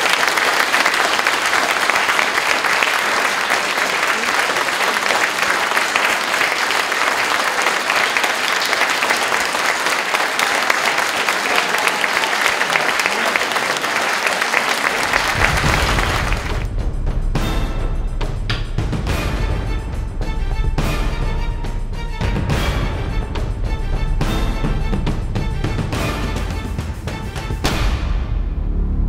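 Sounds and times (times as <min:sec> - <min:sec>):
audience applauding: 0:00.0 - 0:16.7.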